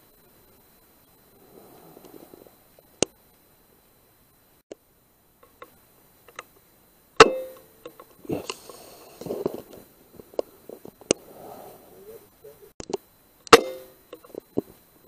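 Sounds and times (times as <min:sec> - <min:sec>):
air rifle shots: 0:13.5 - 0:14.0.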